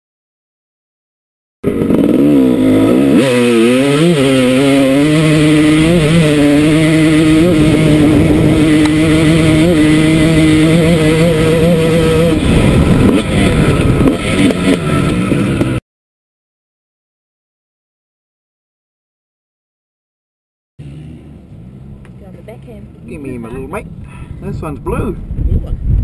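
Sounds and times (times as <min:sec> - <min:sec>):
dirt bike engine at full throttle: 0:01.6 - 0:15.8, 0:20.8 - 0:26.0.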